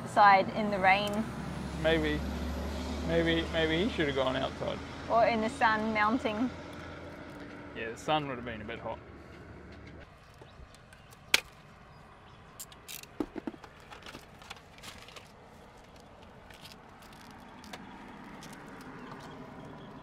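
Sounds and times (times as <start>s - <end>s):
handling clicks and knocks: 12.6s - 20.0s.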